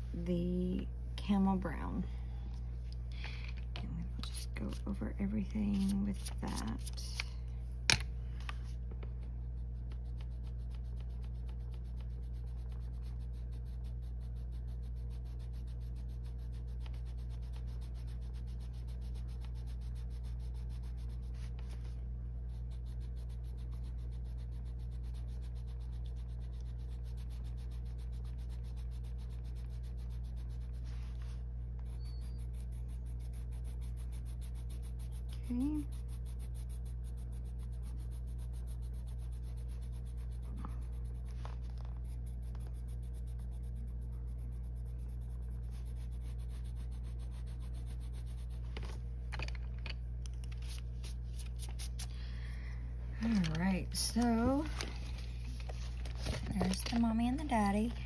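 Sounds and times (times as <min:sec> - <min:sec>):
low hum: 0:00.0 - 0:58.0
pencil shading on paper: 0:09.2 - 0:48.7, 0:53.3 - 0:54.8.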